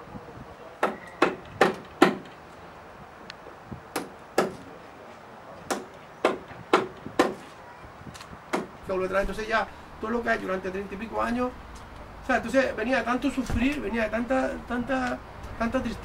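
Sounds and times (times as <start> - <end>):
hammer striking wooden hull: 0.8 - 2.3, 4.0 - 4.6, 5.7 - 7.4, 8.5 - 8.7.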